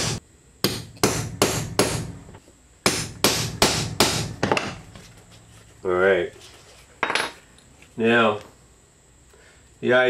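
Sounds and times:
hammer striking a hole punch: 0.0 - 2.1, 2.8 - 4.8.

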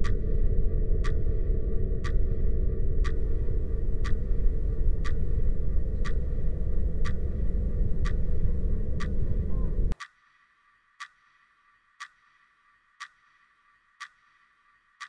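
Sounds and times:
loud low rumbling: 0.0 - 10.0
clock-like ticking: 0.0 - 15.0.

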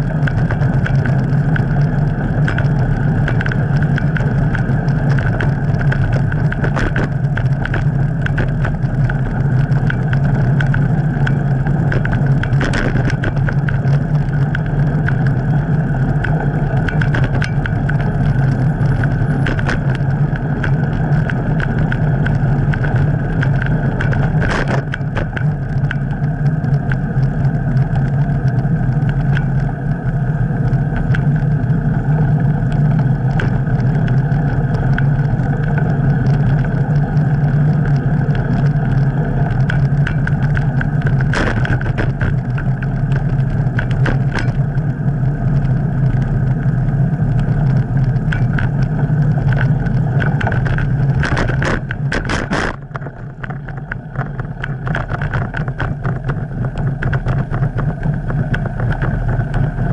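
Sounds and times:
bicycle rattling over pavement: 0.0 - 59.9
bicycle knocks from bumps: 32.9 - 44.9, 47.4 - 59.9.

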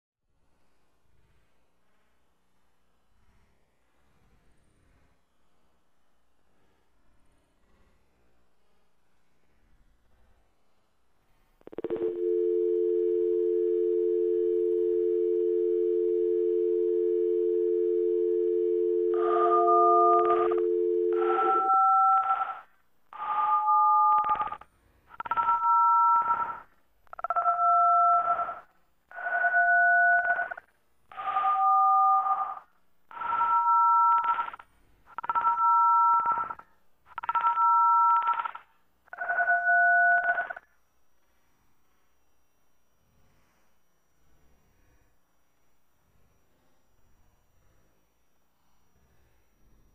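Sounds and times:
slowed telephone dial tone: 11.7 - 22.6, 25.2 - 40.6
slowed touch-tone dialing beeps: 11.7 - 24.6, 25.2 - 40.7.

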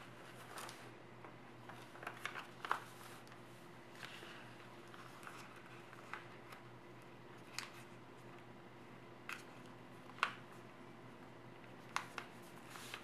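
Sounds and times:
paper crackling as folded: 0.0 - 1.0, 1.6 - 6.7, 7.3 - 8.4, 11.7 - 13.0.

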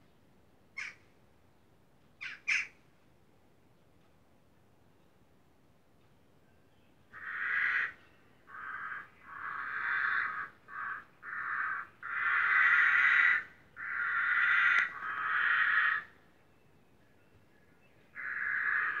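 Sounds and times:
harsh raspy crow-like calls: 2.2 - 2.8, 7.1 - 16.2, 18.2 - 19.0.

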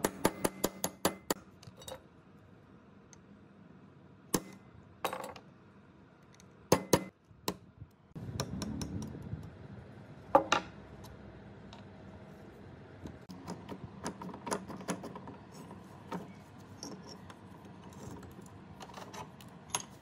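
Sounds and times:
hammer striking metal punch: 0.0 - 1.4, 4.4 - 4.6, 6.7 - 7.6.

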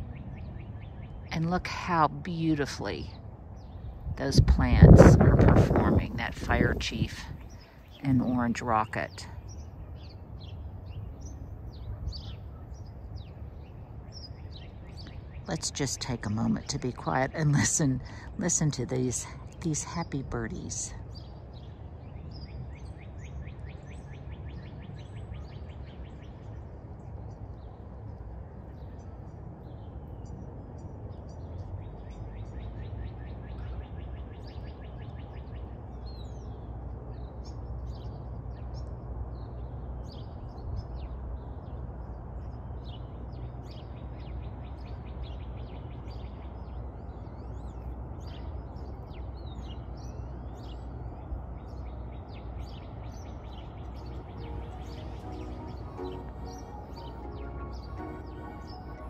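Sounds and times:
steady low rumble: 0.0 - 22.4, 35.0 - 59.0
songbirds chirping and singing: 3.6 - 59.0.

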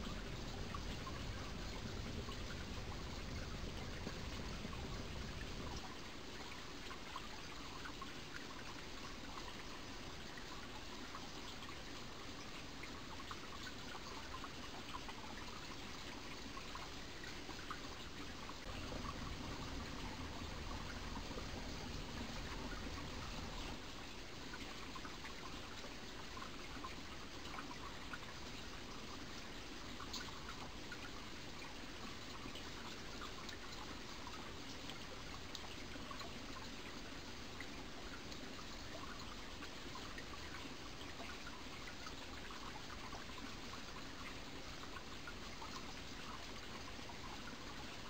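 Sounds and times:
stream flowing: 0.0 - 48.0
water trickling and splashing: 0.0 - 48.0
low rumble: 18.7 - 23.8.

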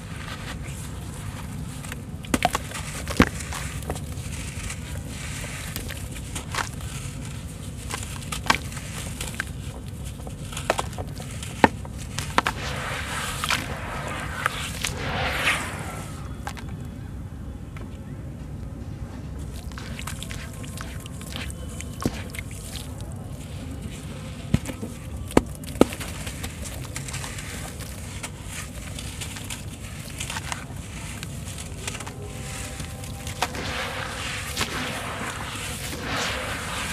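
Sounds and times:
crunches and crackles of crumbling: 0.0 - 15.0, 19.4 - 36.9
steady low rumble: 11.3 - 17.6, 32.2 - 36.9
wet cement crumbling and cracking: 19.5 - 33.7.

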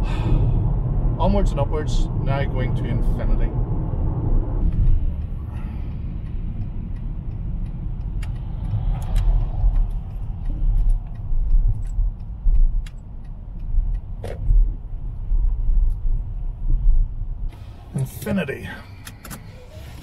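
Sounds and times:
car engine and tyre rumble: 0.0 - 20.0
light ticks and clicks: 4.6 - 16.3.

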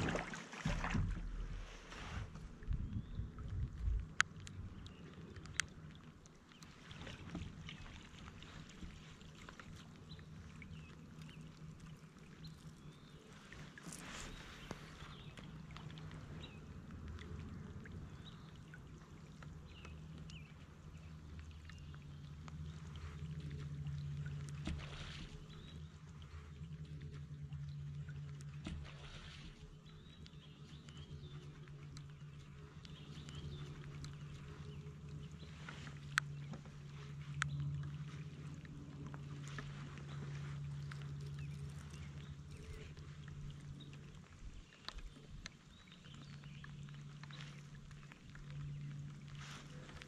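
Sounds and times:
light rain dripping on a kayak: 0.0 - 50.0
low steady rumble: 0.0 - 50.0
steady low hum: 0.0 - 50.0
light rain pattering: 29.9 - 50.0.

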